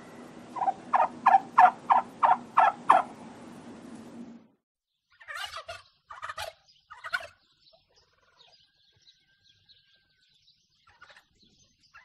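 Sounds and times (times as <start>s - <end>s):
turkey gobbling: 0.5s - 3.2s, 5.2s - 8.6s, 10.8s - 11.3s.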